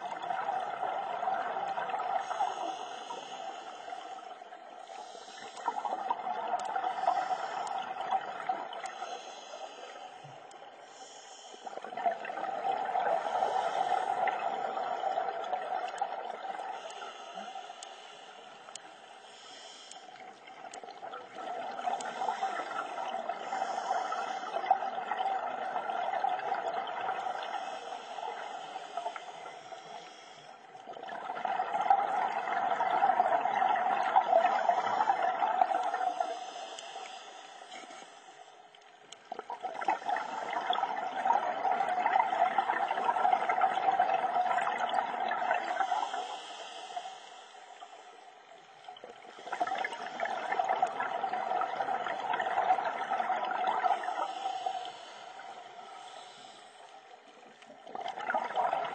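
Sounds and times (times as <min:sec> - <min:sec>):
bubbling of exhaled air: 0:00.0 - 0:18.4, 0:20.3 - 0:37.8, 0:39.3 - 0:47.3, 0:49.0 - 0:56.8, 0:57.4 - 0:58.9
diver breathing through regulator: 0:01.8 - 0:25.8, 0:26.5 - 0:33.8, 0:34.4 - 0:38.8, 0:45.6 - 0:48.4, 0:49.3 - 0:57.2.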